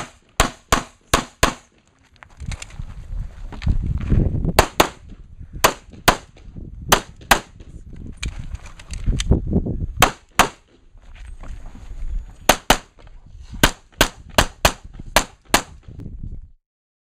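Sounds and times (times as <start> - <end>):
handgun shots: 5.6 - 7.7, 10.0 - 10.7.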